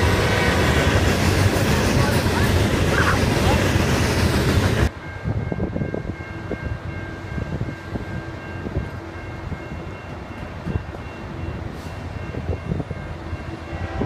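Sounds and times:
distant train horn: 13.1 - 14.0.

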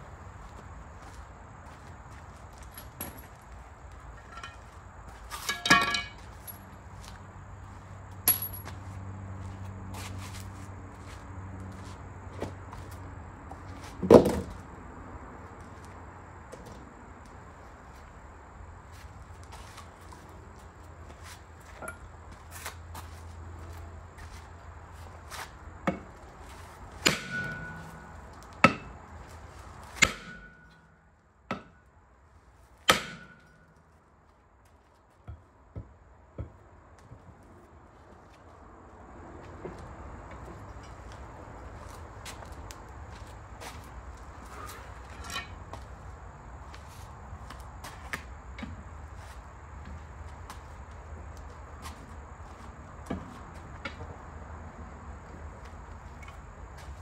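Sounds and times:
hammer blows ringing: 27.0 - 29.0, 30.0 - 30.8.

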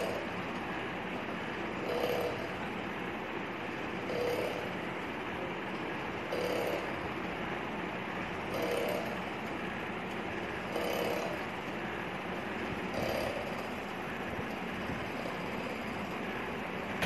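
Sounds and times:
motor-driven pump running: 0.0 - 17.0
mechanical pumping stroke: 10.2 - 17.0.

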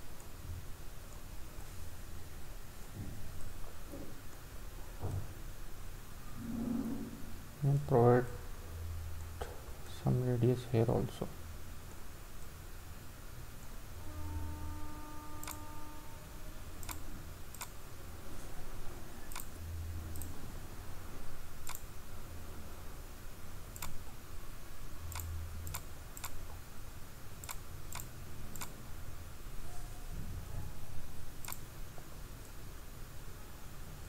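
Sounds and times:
low steady hum: 0.0 - 34.0
computer mouse clicking: 15.4 - 15.6, 16.8 - 17.8, 19.3 - 19.5, 20.1 - 20.4, 21.6 - 21.9, 23.7 - 24.1, 25.1 - 26.6, 27.4 - 28.8, 31.4 - 31.7.

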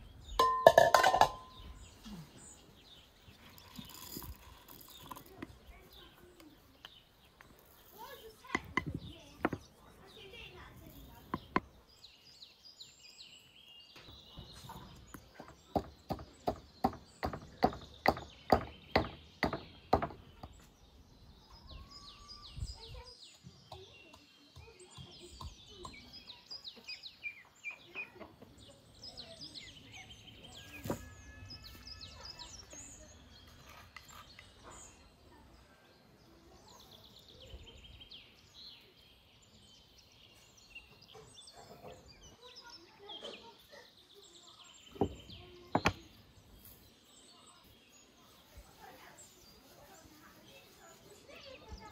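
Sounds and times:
small birds chirping: 0.0 - 51.9.

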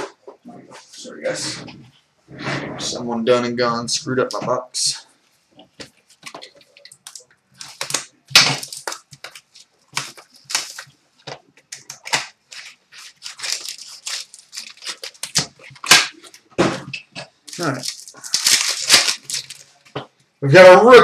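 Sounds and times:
wrappers torn and crumpled: 6.4 - 10.9, 11.7 - 16.4, 17.5 - 19.9.

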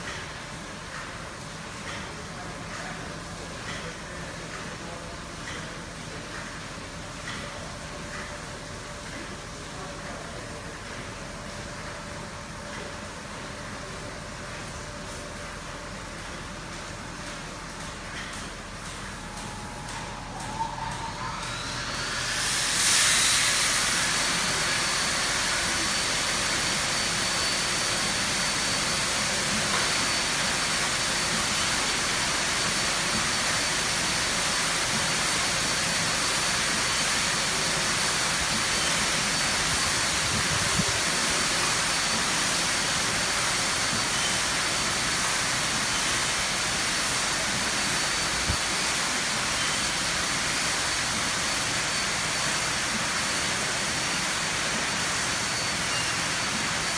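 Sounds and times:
high-pressure water spraying: 21.4 - 56.9.

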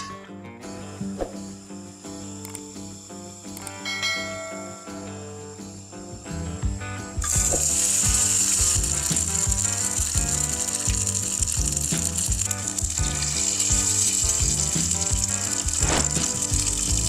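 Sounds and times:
music with steady beat: 0.6 - 17.0
batter sizzling in hot oil: 7.2 - 17.0.

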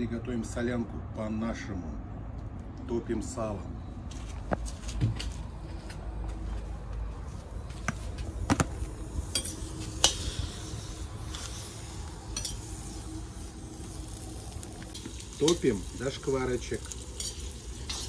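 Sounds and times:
fat sizzling: 8.8 - 18.0.

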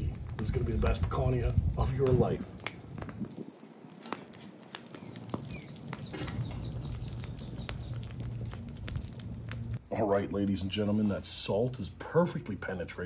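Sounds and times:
sharp pops and snaps: 0.0 - 9.8
fire crackling: 0.0 - 13.0.

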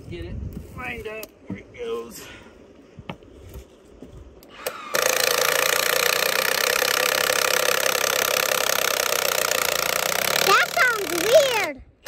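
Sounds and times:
impact driver rattling: 4.6 - 11.8.

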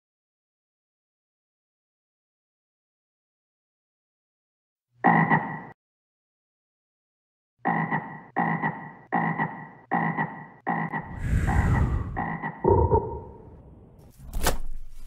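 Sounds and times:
frog croaking: 7.6 - 11.2, 12.1 - 13.5
low rumble: 11.0 - 14.0.

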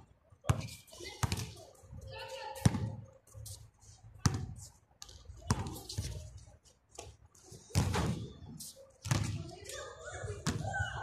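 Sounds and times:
basketball bouncing on concrete: 0.4 - 1.5, 2.6 - 3.0, 4.2 - 6.1, 7.7 - 8.3, 9.0 - 9.5.

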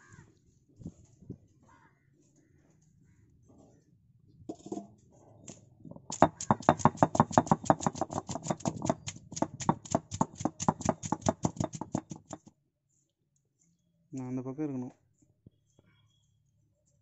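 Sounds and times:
stone roller knocking on stone: 5.9 - 12.5.

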